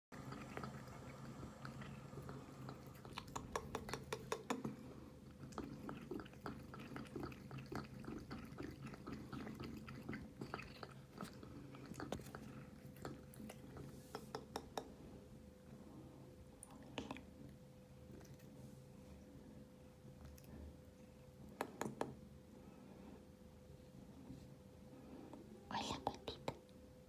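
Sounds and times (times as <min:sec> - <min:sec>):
cat eating from metal bowl: 0:00.2 - 0:15.8.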